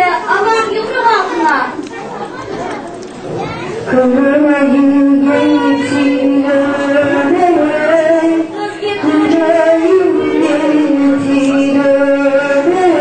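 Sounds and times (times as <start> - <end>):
woman singing: 3.9 - 13.0.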